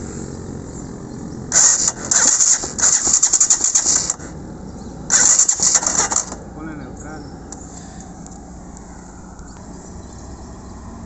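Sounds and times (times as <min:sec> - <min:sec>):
motorcycle engine running: 0:00.0 - 0:06.6
rapid metallic clatter: 0:01.5 - 0:04.3, 0:05.1 - 0:06.4.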